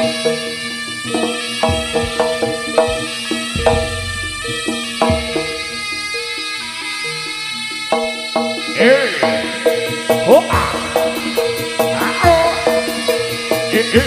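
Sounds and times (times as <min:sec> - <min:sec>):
hand drum strokes: 0:00.0 - 0:06.3, 0:08.0 - 0:14.0
bronze percussion ringing: 0:00.0 - 0:14.0
deep drum thuds: 0:01.6 - 0:06.0.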